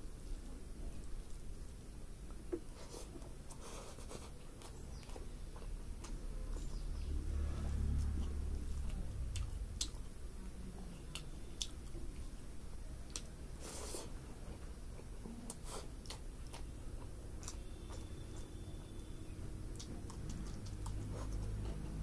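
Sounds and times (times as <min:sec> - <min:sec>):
chewing and lip-smacking: 0:03.1 - 0:06.9, 0:08.0 - 0:12.4, 0:13.0 - 0:22.0
low rumble: 0:06.2 - 0:11.2.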